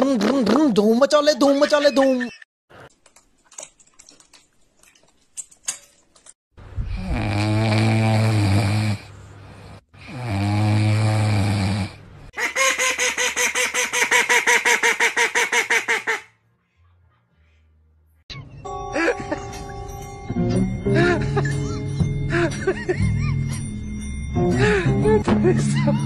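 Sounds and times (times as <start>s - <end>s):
puppy snoring: 6.9s - 12.0s
duck quacking rapidly: 12.4s - 16.4s.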